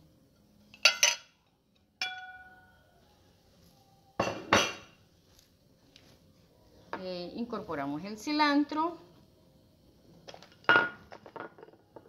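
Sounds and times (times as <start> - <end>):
metal spoon clinking against dishes: 0.7 - 2.7.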